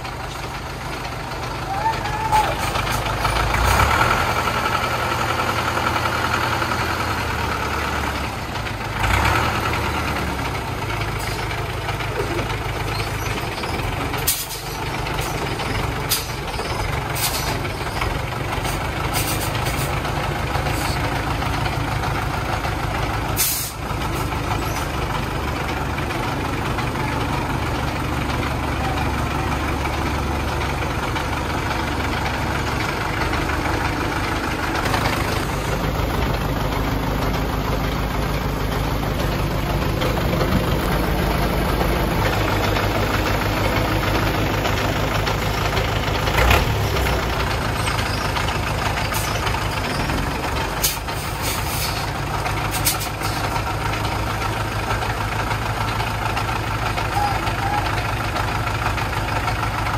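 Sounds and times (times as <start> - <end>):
diesel engine running: 0.0 - 59.9
air brakes hissing: 14.2 - 15.4, 17.2 - 17.6, 18.6 - 20.0, 23.3 - 24.3, 50.8 - 52.1, 52.7 - 53.5.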